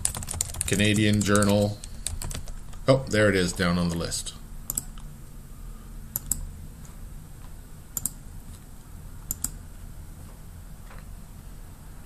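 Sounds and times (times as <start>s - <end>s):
low steady hum: 0.0s - 12.0s
computer mouse clicking: 4.7s - 5.1s, 6.1s - 6.5s, 8.0s - 8.6s, 9.3s - 9.6s.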